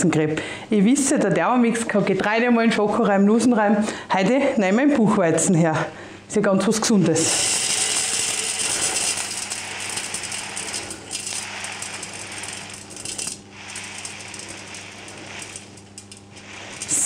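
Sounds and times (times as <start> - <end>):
grains pouring into metal bowl: 7.2 - 17.0.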